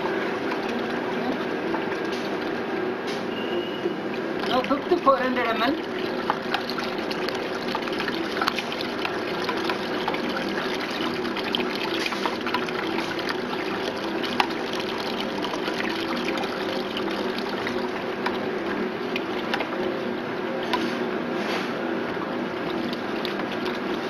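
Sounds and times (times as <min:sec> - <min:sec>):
liquid trickling into a plastic jug: 0:04.1 - 0:20.9, 0:22.3 - 0:24.0.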